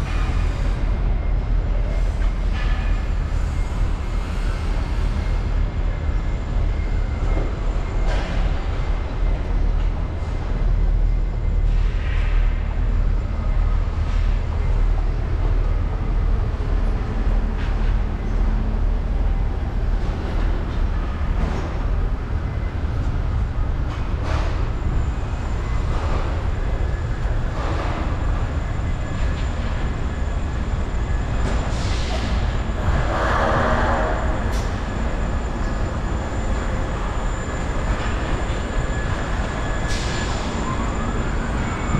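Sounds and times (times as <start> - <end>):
street traffic rumble: 0.0 - 41.9.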